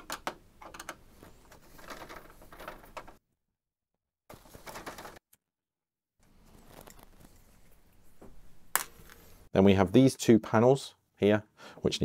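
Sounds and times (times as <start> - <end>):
plastic scraping and rattling: 0.0 - 3.2.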